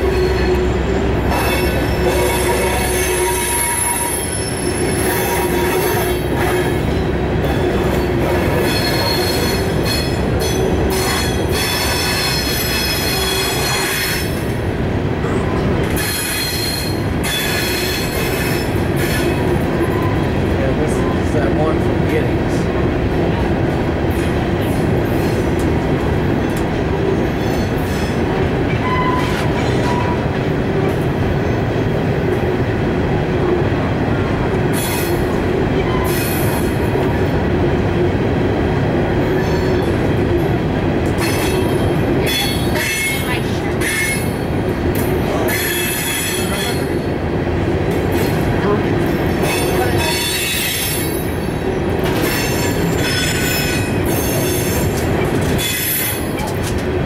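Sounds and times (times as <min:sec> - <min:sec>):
wheel flanges squealing: 0:00.0 - 0:14.4
diesel locomotives running: 0:00.0 - 0:57.0
freight cars rumbling over rails: 0:00.0 - 0:57.0.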